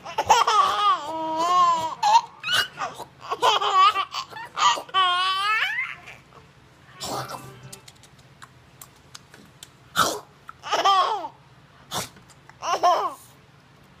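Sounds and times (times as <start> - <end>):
baby girl laughing and squealing: 0.0 - 6.3.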